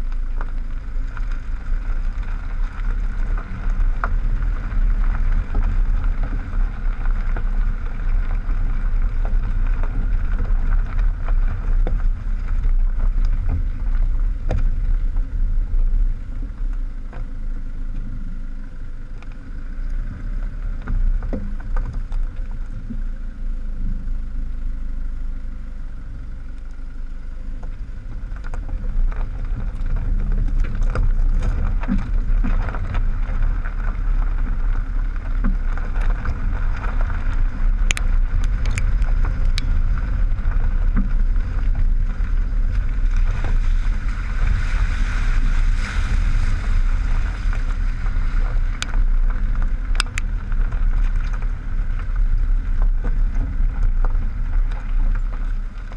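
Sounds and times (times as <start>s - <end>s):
stones clicking against car body: 0.0s - 55.9s
tyre rumbling on gravel: 0.0s - 55.9s
wind on microphone: 27.5s - 55.9s.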